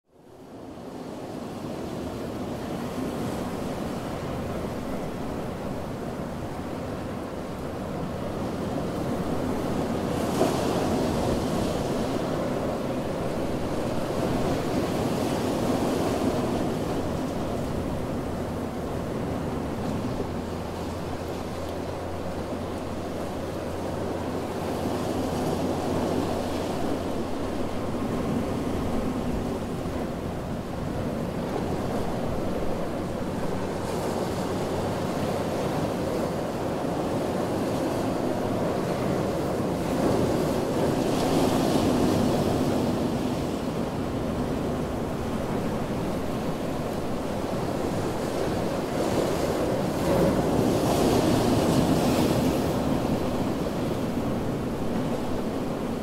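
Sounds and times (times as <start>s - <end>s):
ocean waves breaking on beach: 0.1s - 56.0s.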